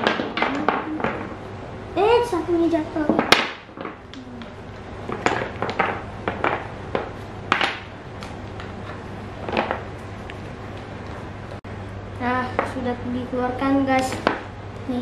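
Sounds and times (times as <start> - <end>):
wooden blocks clacking on table: 0.0 - 1.4, 3.1 - 10.9, 14.0 - 14.5.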